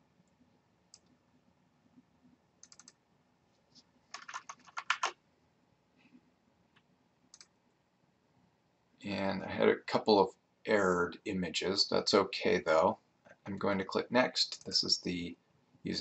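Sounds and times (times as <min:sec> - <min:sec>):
computer mouse clicks: 0:00.3 - 0:01.2, 0:02.6 - 0:03.0, 0:06.7 - 0:07.6.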